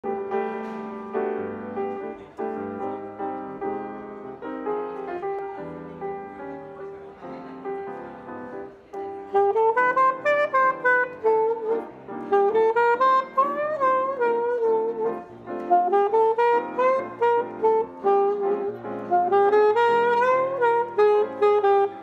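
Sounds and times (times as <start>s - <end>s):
saxophone melody: 0.0s - 6.8s, 8.6s - 22.0s
grand piano chords: 0.0s - 22.0s.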